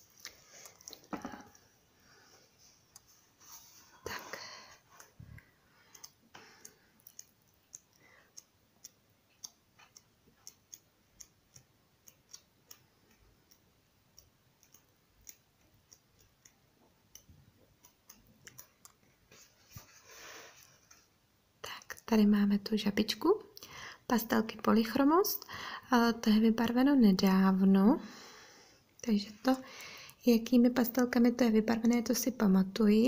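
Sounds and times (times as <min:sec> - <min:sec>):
faint regular ticking: 0:04.4 - 0:19.2.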